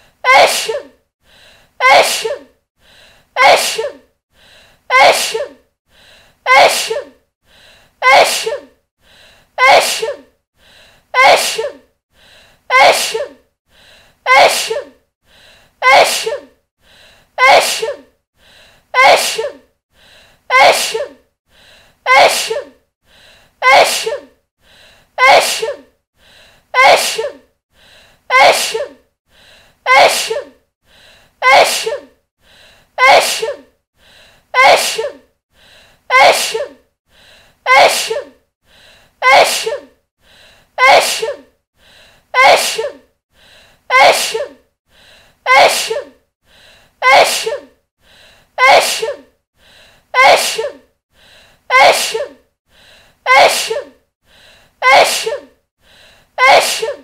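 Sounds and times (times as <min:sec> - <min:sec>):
woman sneezing: 0:00.3 - 0:00.9, 0:01.8 - 0:02.5, 0:03.4 - 0:04.0, 0:04.9 - 0:05.6, 0:06.5 - 0:07.2, 0:08.0 - 0:08.7, 0:09.6 - 0:10.3, 0:11.2 - 0:11.8, 0:12.7 - 0:13.4, 0:14.3 - 0:15.0, 0:15.8 - 0:16.5, 0:17.4 - 0:18.1, 0:19.0 - 0:19.6, 0:20.5 - 0:21.2, 0:22.1 - 0:22.7, 0:23.6 - 0:24.3, 0:25.2 - 0:25.8, 0:26.8 - 0:27.4, 0:28.3 - 0:29.0, 0:29.9 - 0:30.6, 0:31.4 - 0:32.1, 0:33.0 - 0:33.7, 0:34.6 - 0:35.2, 0:36.1 - 0:36.8, 0:37.7 - 0:38.4, 0:39.2 - 0:39.9, 0:40.8 - 0:41.5, 0:42.4 - 0:43.0, 0:43.9 - 0:44.6, 0:45.5 - 0:46.2, 0:47.0 - 0:47.7, 0:48.6 - 0:49.3, 0:50.2 - 0:50.8, 0:51.7 - 0:52.4, 0:53.3 - 0:54.0, 0:54.8 - 0:55.5, 0:56.4 - 0:57.0.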